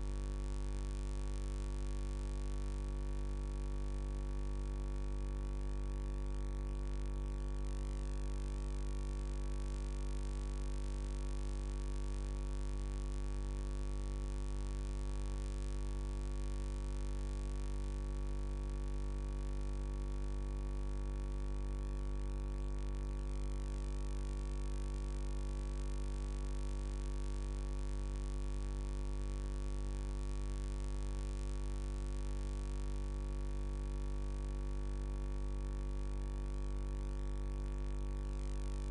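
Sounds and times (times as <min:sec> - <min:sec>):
steady low hum: 0:38.5 - 0:38.9.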